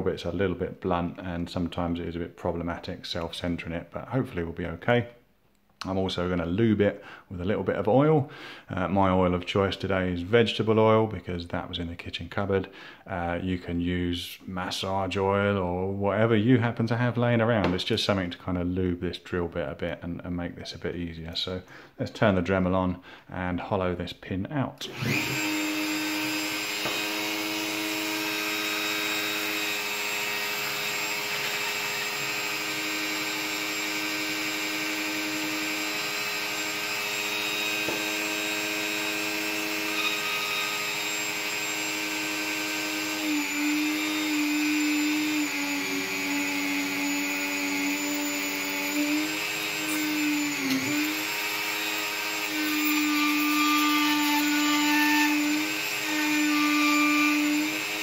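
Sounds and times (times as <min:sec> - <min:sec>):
rotary tool whining: 0:24.8 - 0:58.0.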